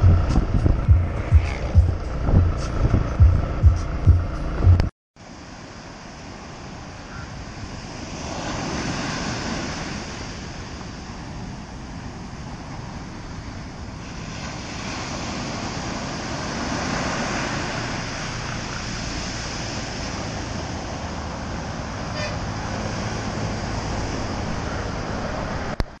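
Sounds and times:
wind buffeting microphone: 0.0s - 4.9s
surf breaking on sand beach: 5.2s - 25.9s.

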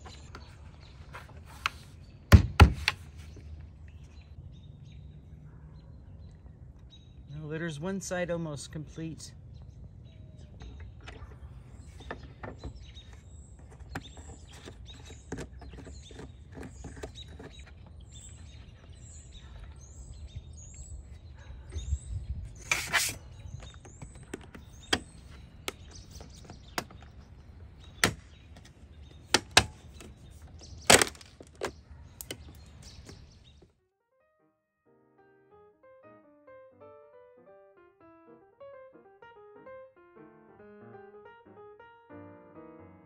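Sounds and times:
birds chirping: 0.0s - 33.8s
plastic clicks and knocks: 23.6s - 33.3s
sharp plastic snaps: 27.8s - 33.3s.

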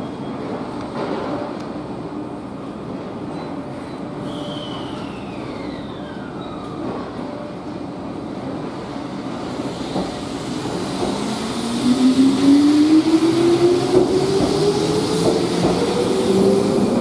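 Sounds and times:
train motor whine: 4.3s - 7.4s
electric train running: 9.5s - 17.0s.

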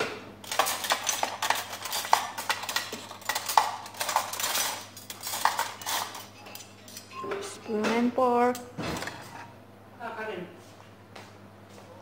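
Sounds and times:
cutlery and dishes clattering: 0.0s - 9.5s.

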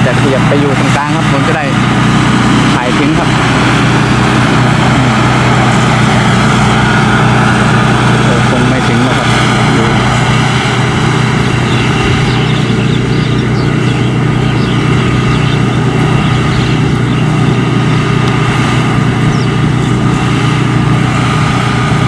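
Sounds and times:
combine harvester engine drone: 0.0s - 22.0s
faint bird chirps: 11.6s - 17.3s, 19.3s - 19.6s.

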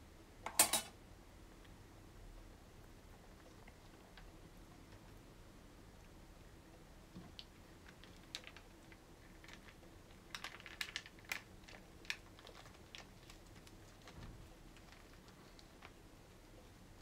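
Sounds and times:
wet rice paper crackling: 7.3s - 17.0s.

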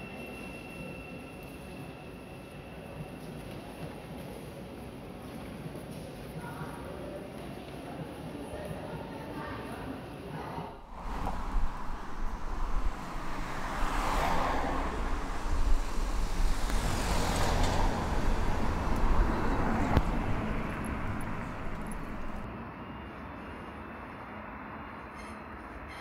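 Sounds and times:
vehicles passing: 10.7s - 22.5s.

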